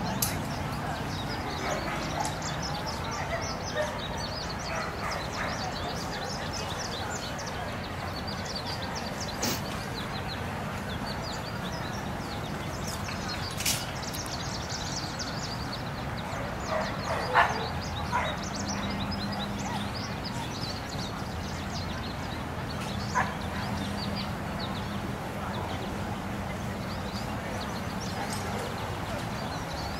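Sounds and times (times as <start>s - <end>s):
outdoor background noise: 0.0s - 29.9s
dog barking: 16.6s - 18.4s.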